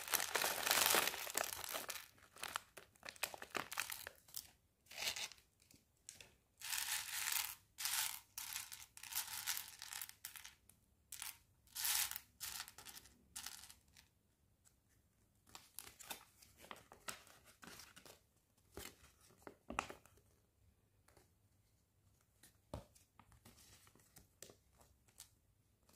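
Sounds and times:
packaging crinkling: 0.0 - 4.2.

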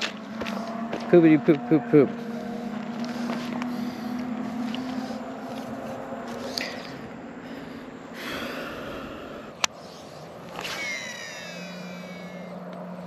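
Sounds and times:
rustling of dry grass and clothing: 0.0 - 1.1, 2.1 - 7.7.

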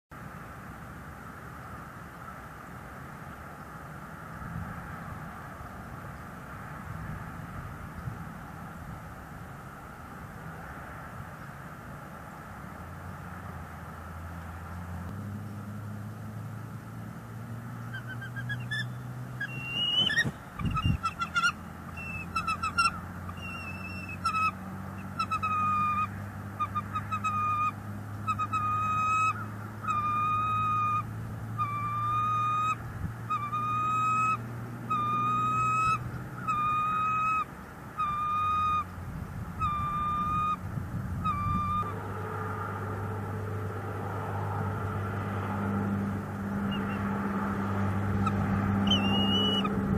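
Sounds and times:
eagle piping calls: 17.9 - 42.1, 46.6 - 47.1, 48.2 - 49.8.

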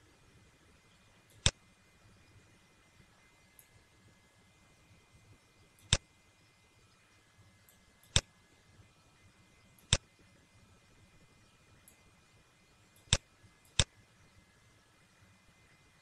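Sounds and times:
faint steady hiss: 0.0 - 16.0
computer mouse clicking: 5.8 - 6.0.

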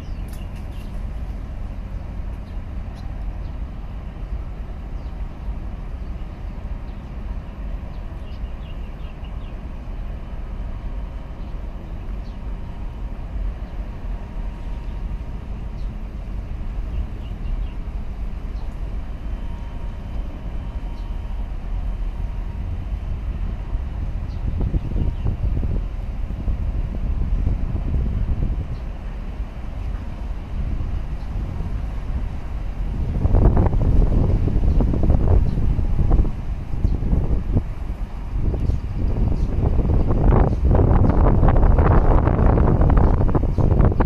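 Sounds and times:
faint steady hum: 0.0 - 44.0
ship engine low rumble: 0.0 - 44.0
wind on microphone: 18.8 - 44.0.

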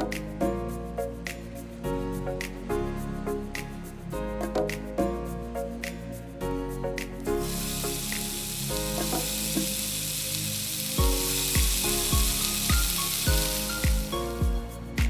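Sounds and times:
background music with beat: 0.0 - 15.0
steak sizzling on a grill: 7.4 - 15.0.

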